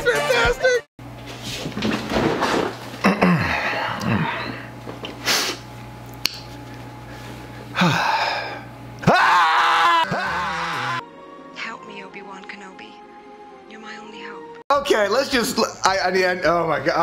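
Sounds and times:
steady low hum: 0:01.0 - 0:09.1.

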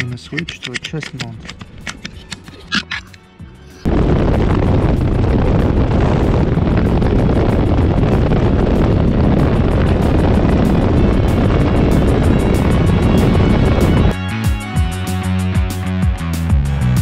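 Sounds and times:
wind rushing over microphone: 0:03.8 - 0:14.2
motorcycle engine running: 0:03.9 - 0:14.1.

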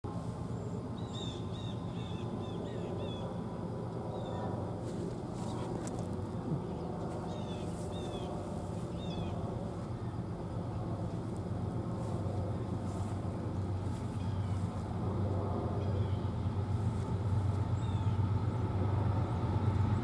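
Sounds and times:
steady low rumble: 0:00.1 - 0:20.0
small birds chirping: 0:00.6 - 0:03.3, 0:05.4 - 0:11.3, 0:12.0 - 0:14.9, 0:17.0 - 0:19.4.

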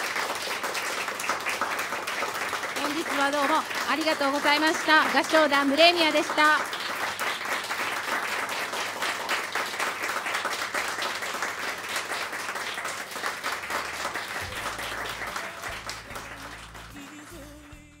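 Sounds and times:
audience applauding: 0:00.0 - 0:17.8.

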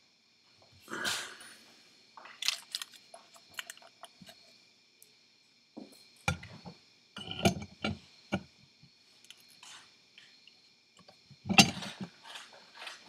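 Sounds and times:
metal parts clunking and scraping: 0:02.3 - 0:04.4, 0:06.3 - 0:08.5, 0:09.2 - 0:13.0.

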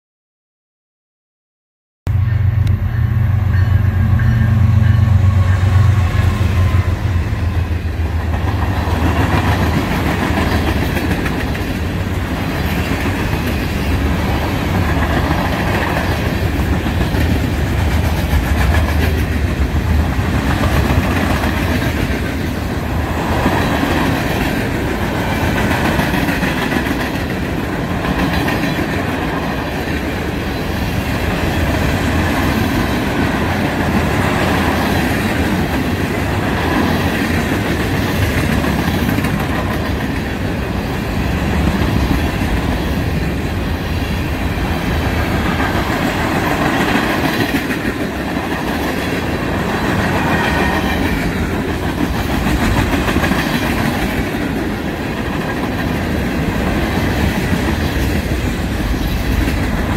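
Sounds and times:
low hum: 0:02.1 - 0:08.3
freight train rolling past: 0:02.1 - 0:59.9
clickety-clack over rail joints: 0:08.0 - 0:40.8, 0:44.9 - 0:59.9.

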